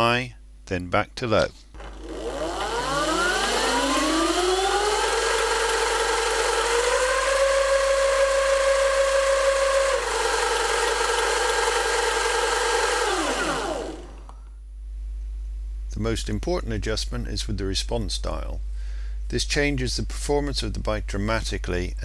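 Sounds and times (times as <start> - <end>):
electric motor whining: 1.8 - 14.4.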